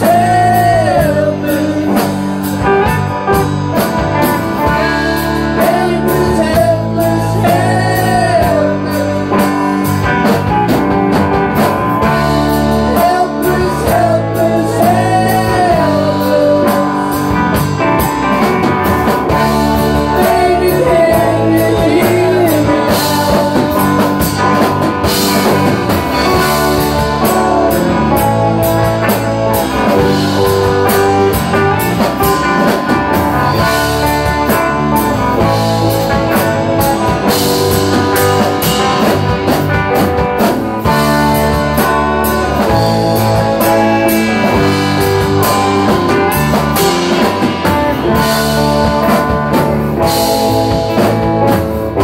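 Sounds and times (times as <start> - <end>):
person singing: 0.0 - 3.5, 4.2 - 10.9, 11.6 - 40.0
band playing electric guitars: 0.0 - 52.0.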